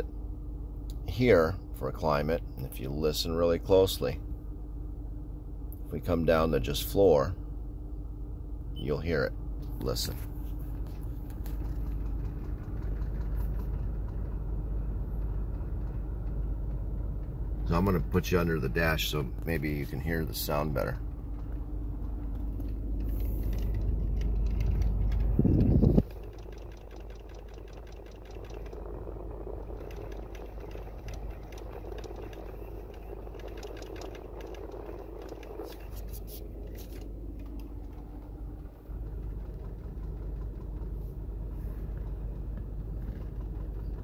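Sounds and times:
low cabin rumble: 0.0 - 44.0
steady hum: 0.0 - 44.0
clicking and gurgling under dashboard: 10.7 - 44.0.

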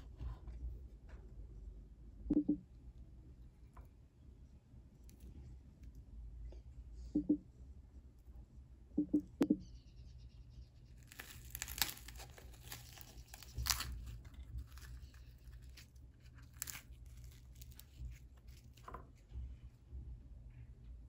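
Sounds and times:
bread crust crackling and tearing: 10.9 - 19.0.

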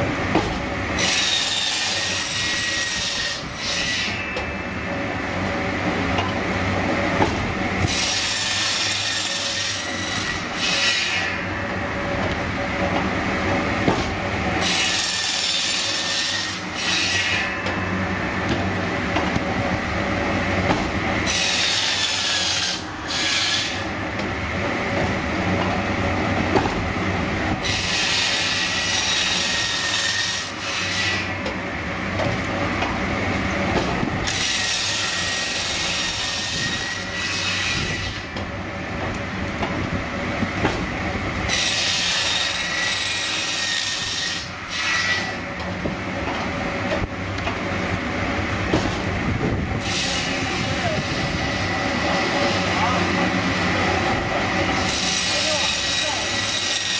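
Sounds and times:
saw rasping through wood: 1.0 - 4.3, 7.2 - 11.4, 13.9 - 17.8, 20.7 - 24.0, 27.6 - 31.5, 33.8 - 38.4, 41.5 - 45.5, 49.8 - 56.9.

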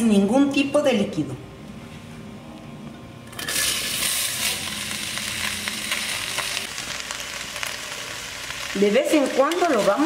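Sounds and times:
vegetables sizzling in hot pot: 3.3 - 10.0.

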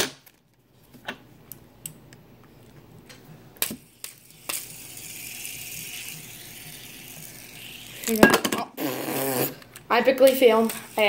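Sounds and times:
fidget spinner whirring: 3.2 - 11.0
plastic fidget spinners clicking: 3.6 - 8.2, 9.4 - 11.0.

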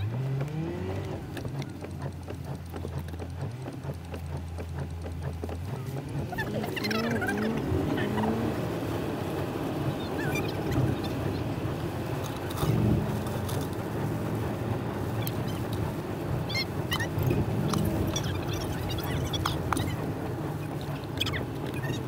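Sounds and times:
sped-up car road noise rumble: 0.0 - 22.0
high chirps and clicks: 15.1 - 22.0.

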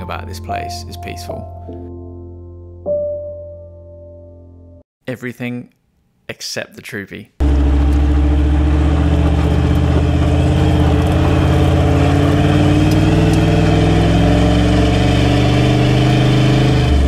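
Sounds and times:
vehicle engine on gravel road: 7.4 - 17.0.

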